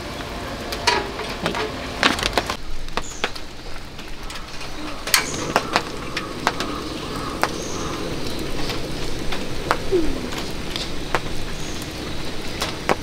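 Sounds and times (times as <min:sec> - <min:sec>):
gas burner hissing: 0:03.1 - 0:13.0
faint bird call: 0:04.3 - 0:08.8, 0:09.6 - 0:11.9.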